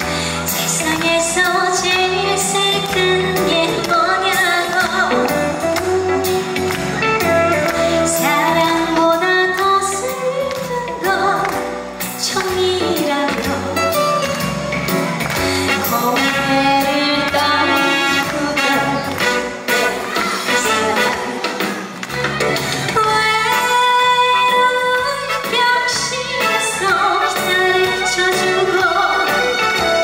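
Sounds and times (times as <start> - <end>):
woman singing into microphone: 0.0 - 6.5, 7.6 - 14.4, 15.5 - 21.5, 22.7 - 30.0
amplified backing music with bass beat: 0.0 - 30.0.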